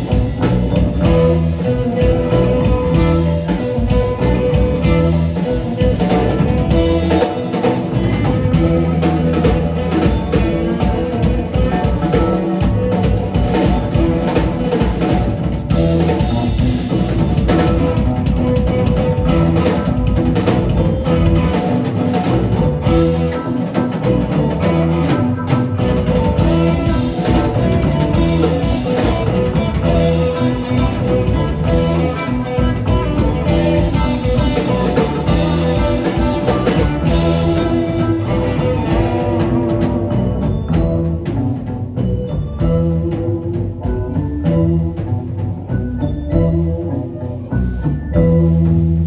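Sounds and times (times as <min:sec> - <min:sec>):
drum kit: 0:00.0 - 0:49.0
electric guitars: 0:00.0 - 0:49.0
keyboard: 0:00.0 - 0:49.0.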